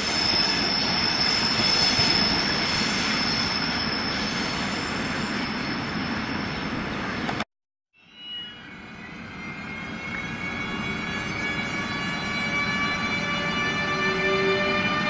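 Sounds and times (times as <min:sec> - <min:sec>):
electric locomotive whine: 0:00.0 - 0:07.2, 0:08.0 - 0:15.0
train running noise: 0:00.0 - 0:07.4, 0:08.6 - 0:15.0.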